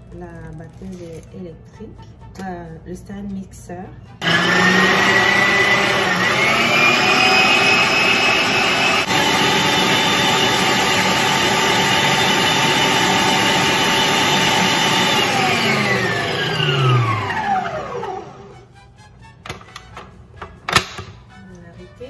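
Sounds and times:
stand mixer motor whine: 0:04.2 - 0:18.5.

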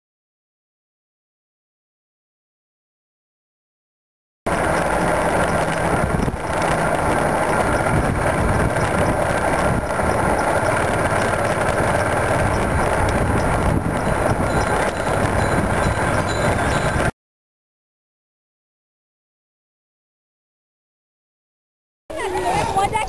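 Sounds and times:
motorcycle engine running: 0:04.5 - 0:17.1
road noise: 0:04.5 - 0:17.1, 0:22.1 - 0:23.0
wind on microphone: 0:04.6 - 0:17.1.

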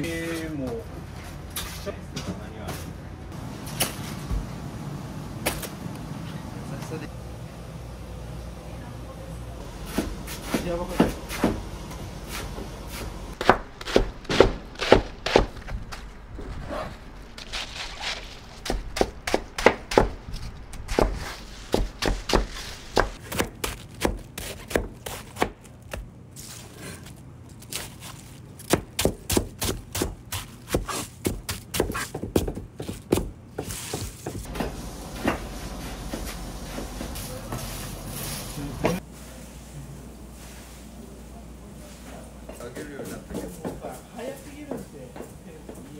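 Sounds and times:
knives chopping cabbage: 0:12.2 - 0:16.0, 0:17.4 - 0:26.1, 0:27.6 - 0:34.7.

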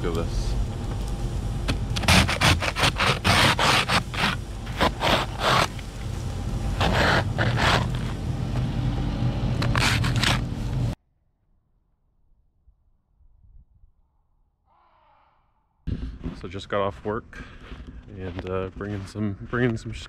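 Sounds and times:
low hum: 0:00.0 - 0:20.0
scraping ice off a vehicle: 0:02.0 - 0:05.9, 0:06.7 - 0:08.2, 0:09.6 - 0:10.5.

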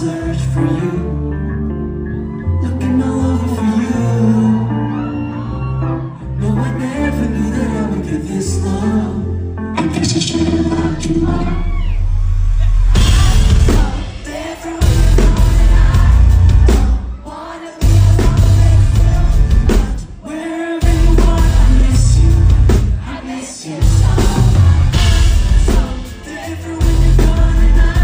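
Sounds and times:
man singing into a microphone: 0:00.0 - 0:01.6, 0:02.4 - 0:05.4, 0:06.0 - 0:11.5, 0:16.8 - 0:22.8, 0:25.6 - 0:28.0
loud band accompaniment with heavy bass: 0:00.0 - 0:28.0.

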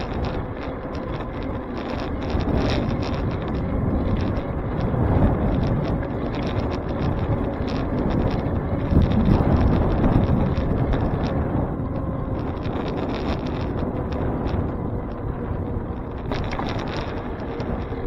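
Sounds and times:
bicycle clicks and rattles: 0:00.0 - 0:18.0
wind buffeting microphone: 0:00.0 - 0:18.0.

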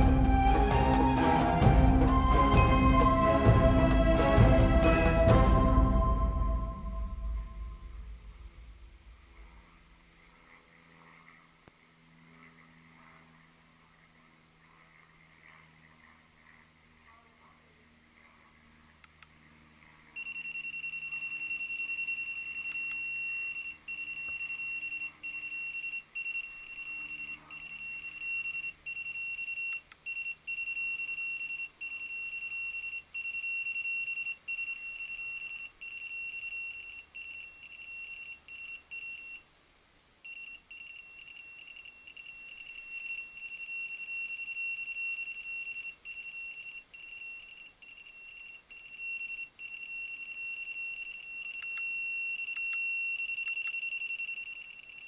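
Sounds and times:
high-pitched buzzer tone: 0:20.2 - 0:39.4, 0:40.3 - 0:55.0.

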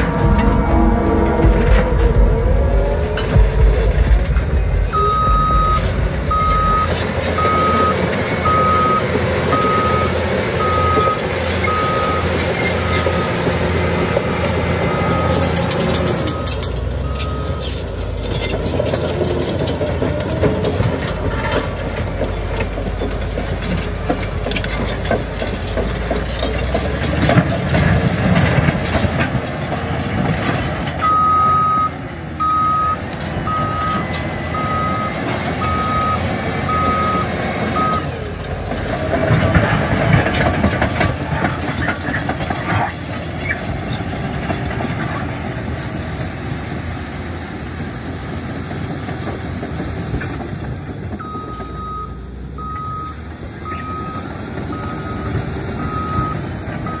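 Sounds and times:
bulldozer diesel engine running: 0:00.0 - 0:57.0
reverse alarm beeping: 0:04.8 - 0:13.4, 0:14.2 - 0:15.6, 0:16.2 - 0:17.6, 0:31.0 - 0:38.1, 0:51.2 - 0:57.0.

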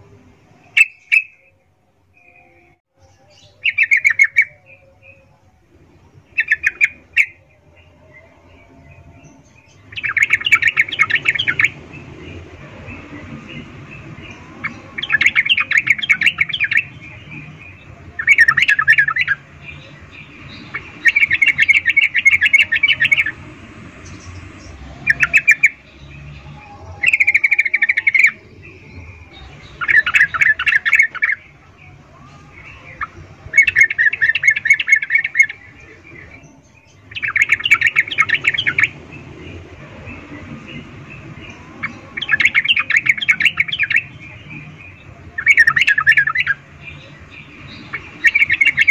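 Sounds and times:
bulbul chattering call: 0:32.2 - 0:48.9.

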